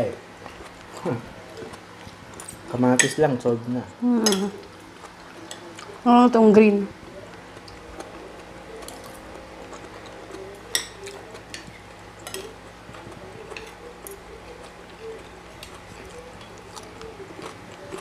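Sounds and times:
cutlery clinking on plate: 10.6s - 12.6s.

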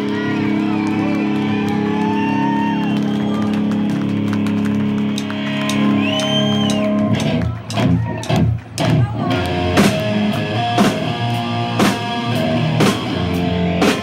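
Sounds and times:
crowd whooping: 0.0s - 8.6s.

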